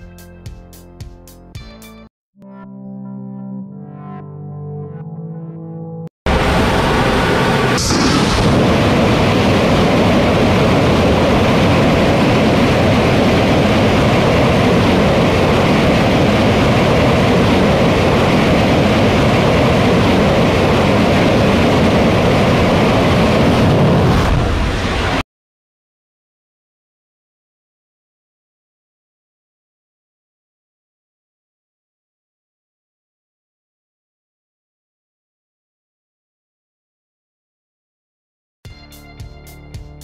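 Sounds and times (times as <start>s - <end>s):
rocket engine exhaust roar: 6.3s - 25.2s.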